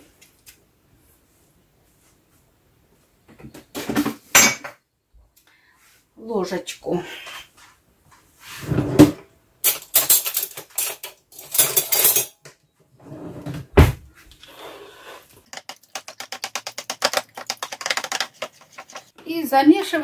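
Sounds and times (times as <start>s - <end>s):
spoon scraping plastic bowl: 14.4s - 19.2s.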